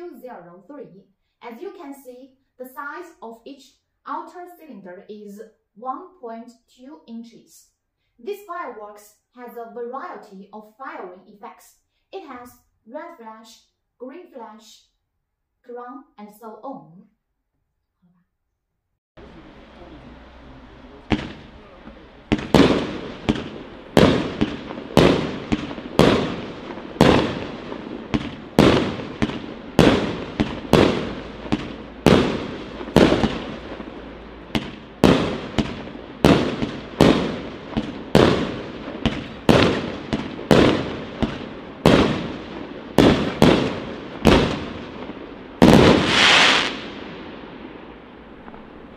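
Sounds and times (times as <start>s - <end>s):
fireworks shots firing: 19.2s - 48.9s.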